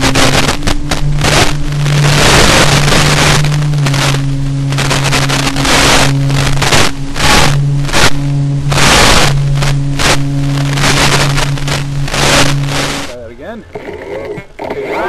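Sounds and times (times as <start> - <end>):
electric motor and propeller droning: 0.0 - 15.0
wind rushing over microphone: 0.0 - 15.0.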